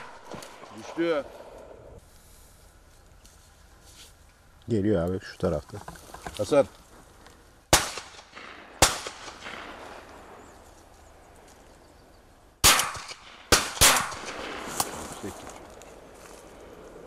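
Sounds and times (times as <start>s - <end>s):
shotgun shots: 7.7s - 10.0s, 12.6s - 15.1s.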